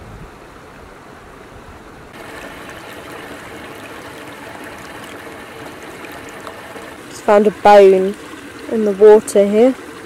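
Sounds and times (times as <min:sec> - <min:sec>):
stream trickling over pebbles: 0:02.2 - 0:10.0.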